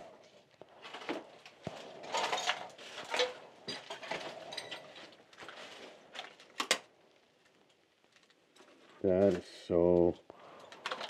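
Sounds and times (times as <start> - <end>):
clicks scrapes and rustling: 10.4 - 11.0.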